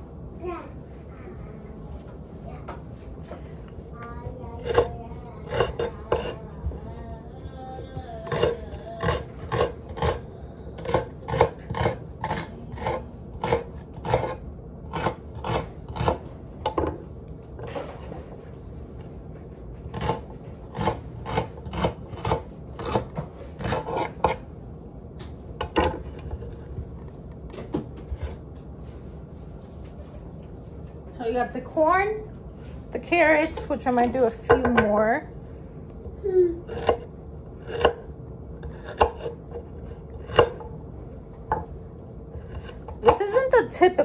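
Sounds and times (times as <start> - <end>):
knife chopping on wooden board: 4.6 - 6.4, 8.2 - 10.2, 10.8 - 17.0, 19.9 - 24.4, 36.7 - 40.7.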